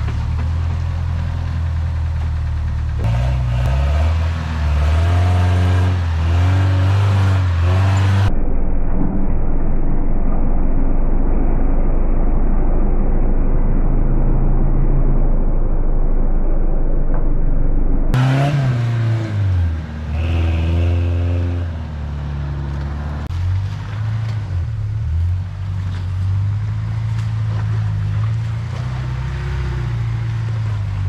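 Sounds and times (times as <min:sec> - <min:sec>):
pickup engine revving: 0:03.0 - 0:08.3, 0:18.1 - 0:24.4.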